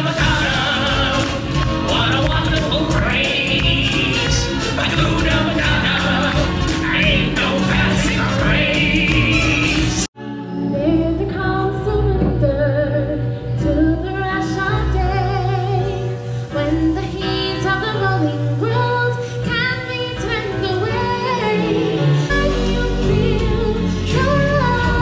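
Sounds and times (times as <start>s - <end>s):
stage show music accompaniment: 0.0s - 25.0s
woman singing: 10.7s - 25.0s.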